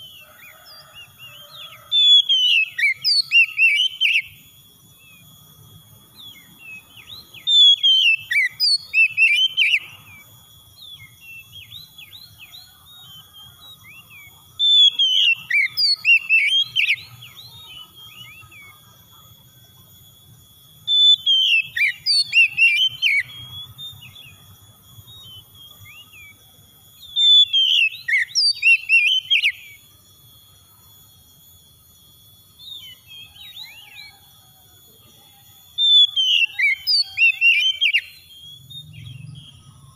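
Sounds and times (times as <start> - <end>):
bird singing whistled phrases: 0.0 - 5.3, 6.1 - 10.2, 10.8 - 18.8, 20.8 - 26.4, 27.0 - 29.9, 32.5 - 34.2, 35.7 - 39.7
faint steady high tones: 0.0 - 39.9
soft bird chirps: 32.2 - 39.9.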